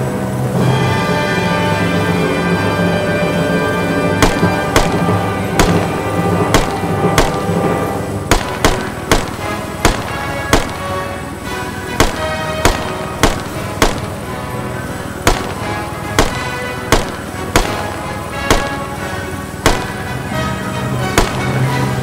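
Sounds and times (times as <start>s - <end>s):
background music: 0.0s - 22.0s
rifle shots: 4.1s - 11.2s, 11.9s - 21.9s.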